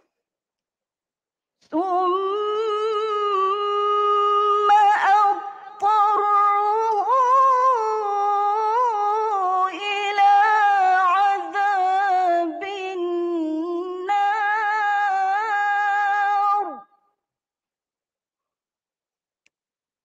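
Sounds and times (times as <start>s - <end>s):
woman reciting melodically: 1.7s - 16.9s.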